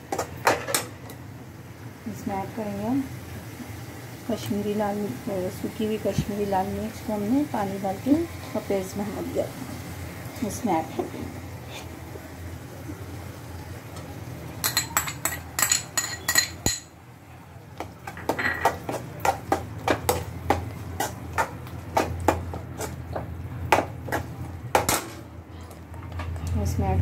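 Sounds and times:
metal spoon knocking on pan: 0:17.8 - 0:25.2.

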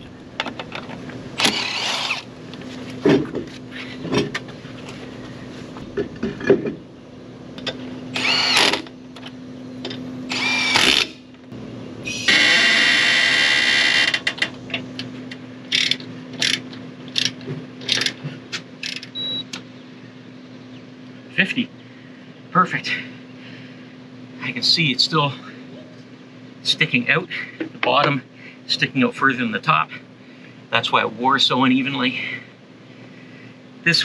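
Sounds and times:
steady low hum: 0:00.0 - 0:34.0
impact wrench hammering: 0:01.4 - 0:02.2
impact wrench whirring: 0:01.4 - 0:02.3, 0:08.1 - 0:08.9, 0:10.3 - 0:11.2, 0:12.1 - 0:14.5, 0:15.7 - 0:18.2.

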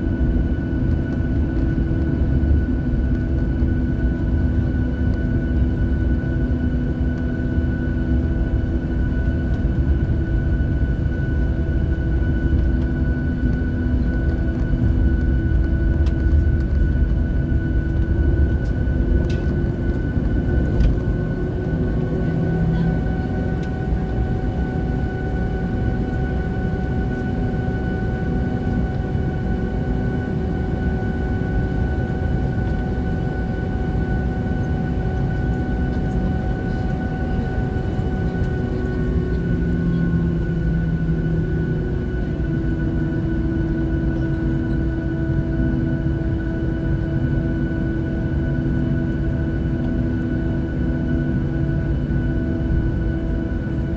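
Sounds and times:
jet engine whine: 0:00.0 - 0:53.9
low cabin rumble: 0:00.0 - 0:53.9.

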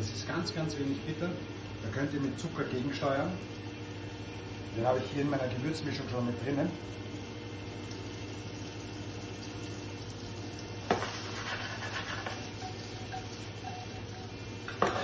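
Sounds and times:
steady low hum: 0:00.0 - 0:15.0
asparagus sizzling in butter: 0:07.8 - 0:15.0.

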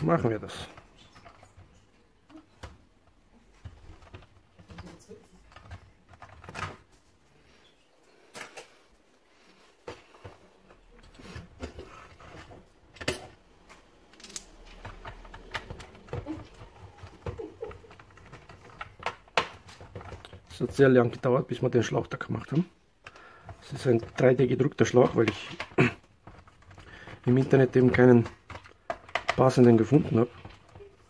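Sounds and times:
plastic vacuum parts clicking: 0:22.4 - 0:31.0.

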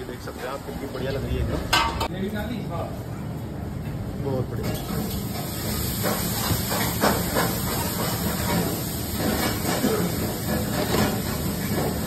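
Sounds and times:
kitchen background hiss: 0:04.2 - 0:12.0.

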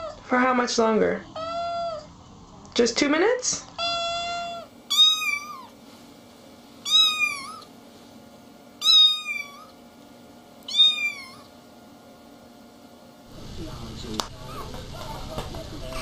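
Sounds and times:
kitten meowing: 0:01.4 - 0:02.1, 0:03.8 - 0:05.7, 0:06.8 - 0:07.7, 0:08.8 - 0:09.8, 0:10.7 - 0:11.5.

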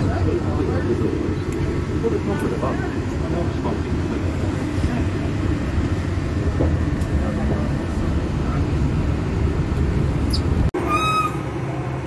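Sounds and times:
monorail car rumbling: 0:00.0 - 0:12.0
outdoor traffic noise: 0:00.0 - 0:12.0.

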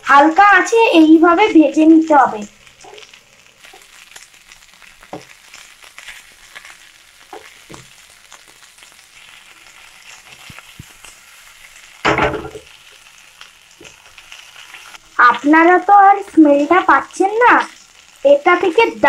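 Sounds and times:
food sizzling in a frying pan: 0:00.0 - 0:19.0.

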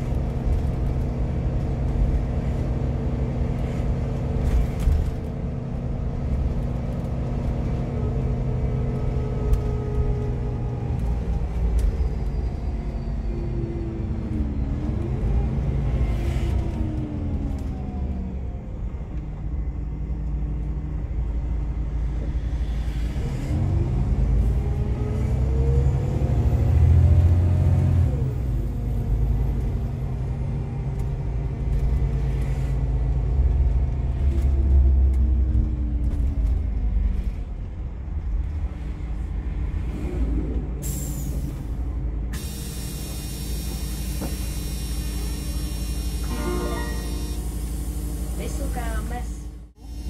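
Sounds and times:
bus diesel engine rumbling: 0:00.0 - 0:50.0
air brakes hissing: 0:40.8 - 0:48.7.

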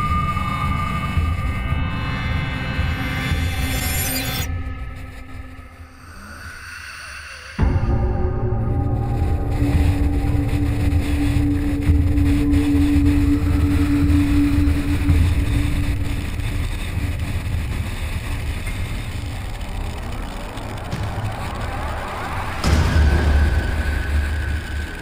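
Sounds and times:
engine and road rumble: 0:09.0 - 0:25.0.

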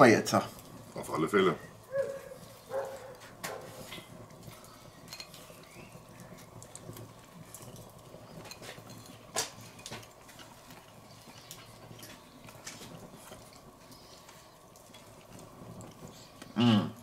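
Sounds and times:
people chewing sandwiches: 0:01.9 - 0:17.0.

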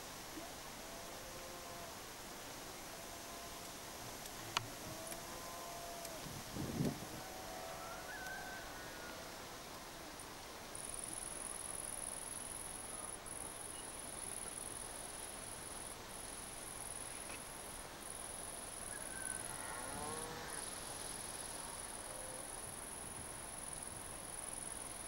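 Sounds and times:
faint animal call: 0:04.8 - 0:06.3, 0:06.9 - 0:09.6, 0:18.9 - 0:20.7.

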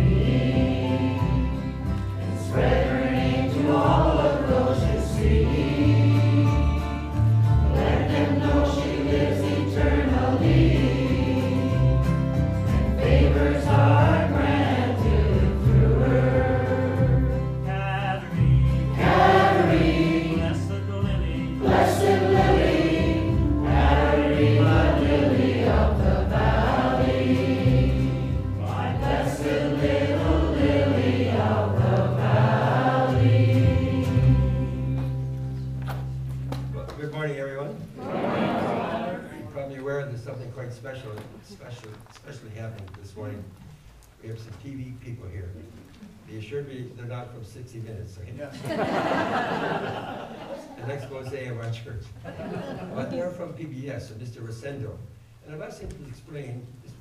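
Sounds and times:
congregation singing a hymn: 0:00.0 - 0:35.6, 0:37.9 - 0:39.5, 0:48.7 - 0:51.0.

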